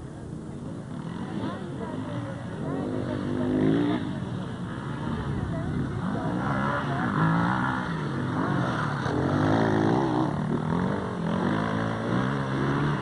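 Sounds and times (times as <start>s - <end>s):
motorcycle engines revving: 0.0s - 13.0s.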